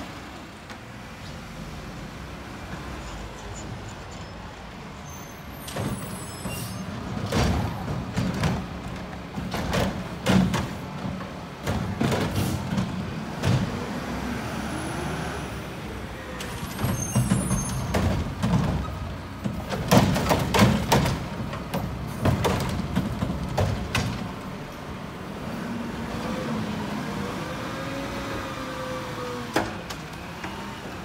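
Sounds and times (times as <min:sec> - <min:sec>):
garbage truck diesel engine: 0:00.0 - 0:31.0
metal clanks and rattles: 0:16.4 - 0:24.4.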